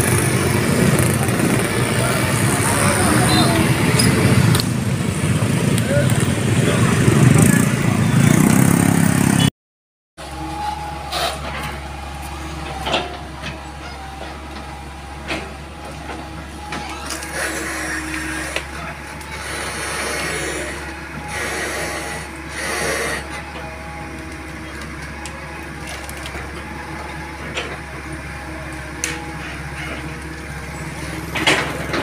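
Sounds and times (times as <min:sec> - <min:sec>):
excavator diesel engine running: 0:00.0 - 0:09.5, 0:10.2 - 0:32.0
motor scooters passing: 0:00.0 - 0:09.5, 0:10.2 - 0:27.0.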